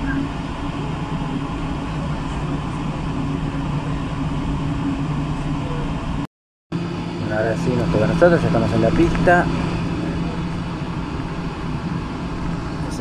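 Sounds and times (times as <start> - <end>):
jet engines droning: 0.0 - 13.0.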